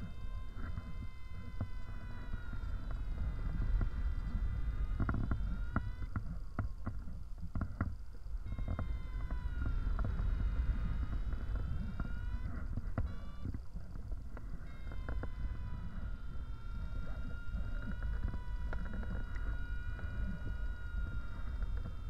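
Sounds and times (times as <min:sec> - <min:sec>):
faint wavering whistle: 0:08.4 - 0:13.8, 0:14.4 - 0:22.0.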